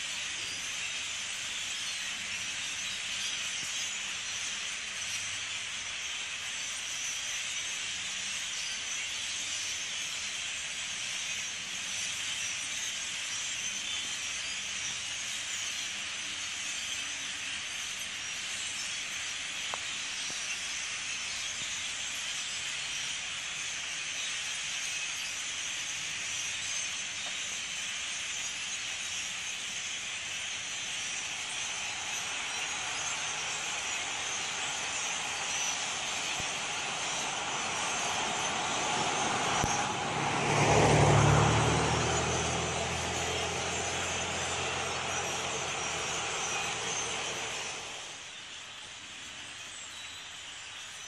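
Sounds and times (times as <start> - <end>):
flock of starlings chattering: 0.0 - 51.0.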